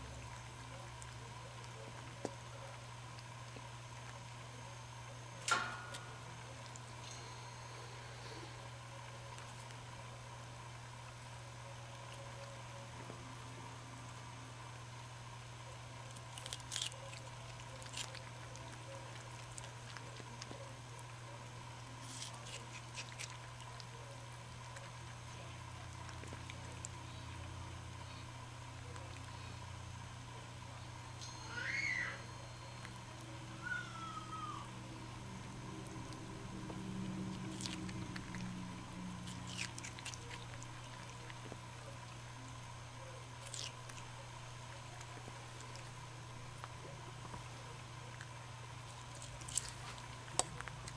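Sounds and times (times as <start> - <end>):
lemur chewing food: 0.0 - 31.2, 32.5 - 50.9
steady low hum: 0.0 - 50.9
small crunches: 16.0 - 29.6, 35.4 - 42.4, 43.2 - 50.9.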